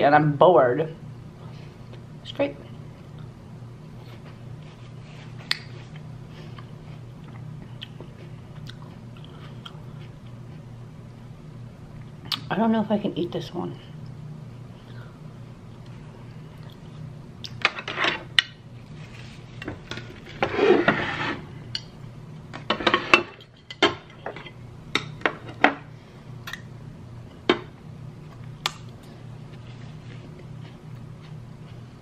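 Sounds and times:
crockery scraping: 19.0s - 21.5s, 22.6s - 24.6s.

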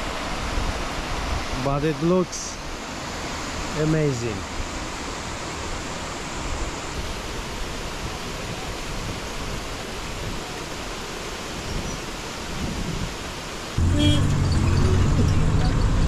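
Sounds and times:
water rushing over rocks: 0.0s - 16.0s
vehicle engine: 13.8s - 16.0s.

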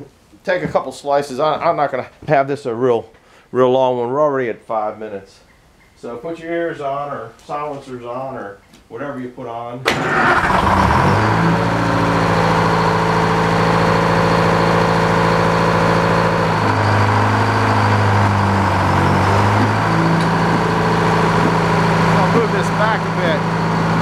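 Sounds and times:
sawmill engine running: 9.9s - 24.0s
circular saw blade spinning up: 16.0s - 24.0s.

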